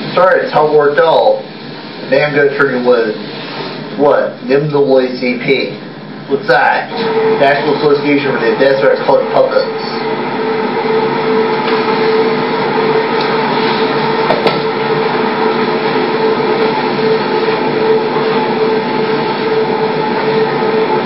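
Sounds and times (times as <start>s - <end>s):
loud hum and hiss: 0.0s - 21.0s.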